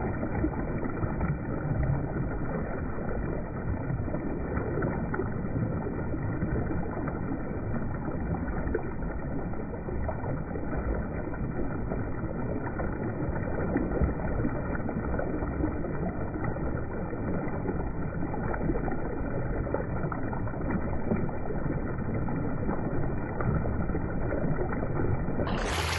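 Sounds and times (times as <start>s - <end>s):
river current churning and splashing: 18.4s - 25.9s.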